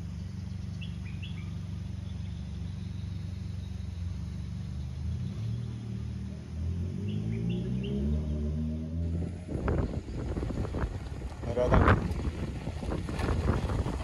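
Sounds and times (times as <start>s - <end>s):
bird chirps: 0.0s - 6.4s, 7.0s - 8.5s.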